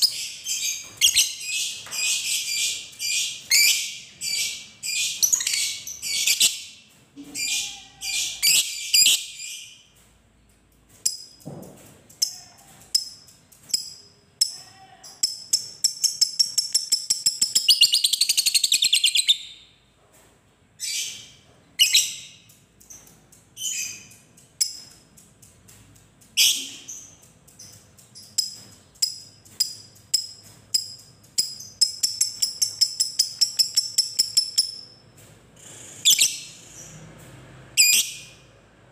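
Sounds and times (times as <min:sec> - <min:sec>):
lovebird chirping: 0:15.3 - 0:19.6.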